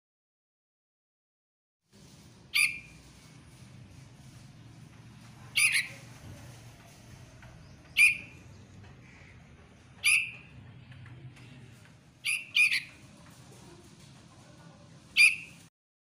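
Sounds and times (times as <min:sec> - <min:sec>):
bird giving sharp calls: 0:05.5 - 0:06.0, 0:07.9 - 0:08.4, 0:10.0 - 0:10.5, 0:12.2 - 0:13.0.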